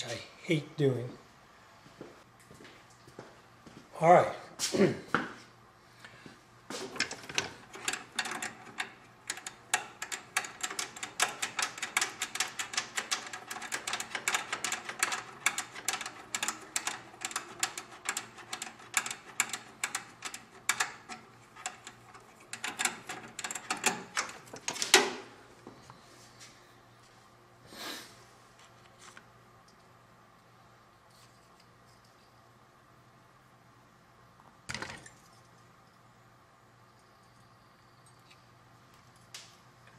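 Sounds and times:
small hard parts clicking: 0:06.9 - 0:25.1.

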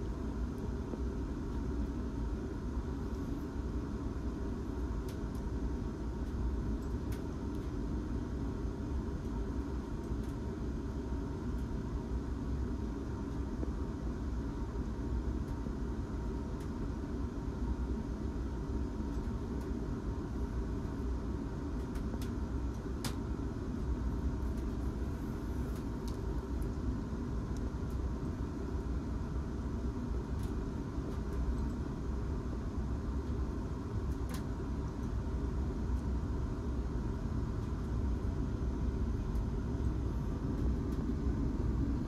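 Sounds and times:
faint steady whine: 0:00.0 - 0:42.0
low train rumble: 0:00.0 - 0:42.0
light ticks: 0:05.1 - 0:05.5, 0:21.8 - 0:23.2.

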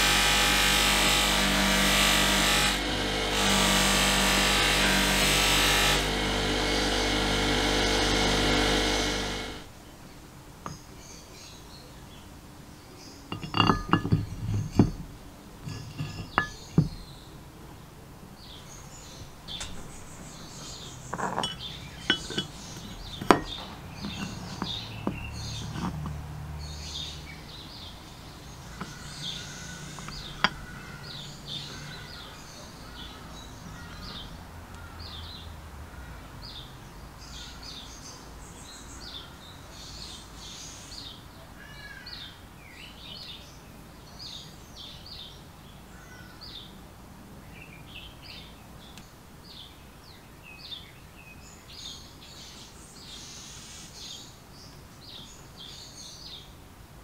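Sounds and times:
birds chirping: 0:06.1 - 0:46.7
metal parts clinking and knocking: 0:13.3 - 0:17.1, 0:19.6 - 0:26.2, 0:28.8 - 0:30.8.

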